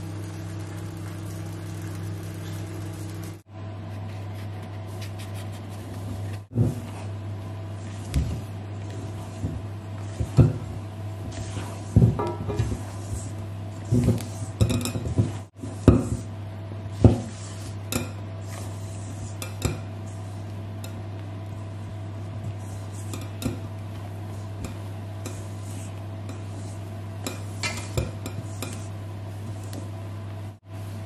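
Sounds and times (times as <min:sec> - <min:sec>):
steady low hum: 0:00.0 - 0:31.0
spatula scraping metal bowl: 0:07.8 - 0:16.3, 0:24.4 - 0:28.9.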